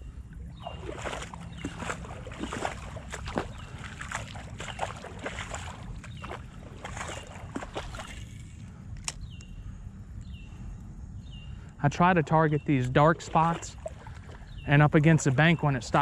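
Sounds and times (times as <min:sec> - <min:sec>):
bird chirping: 0:00.0 - 0:08.2, 0:09.1 - 0:16.0
water splashing around wading legs: 0:00.5 - 0:08.6, 0:12.8 - 0:16.0.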